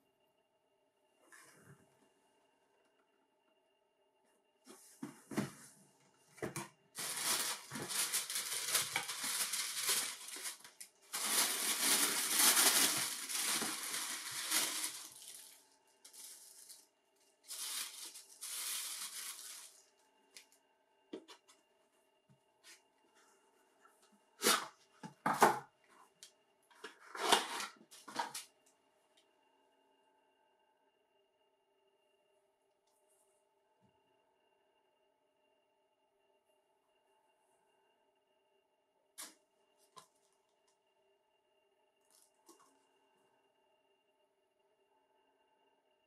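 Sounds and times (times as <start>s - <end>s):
tissue paper crinkling: 7.0s - 20.0s.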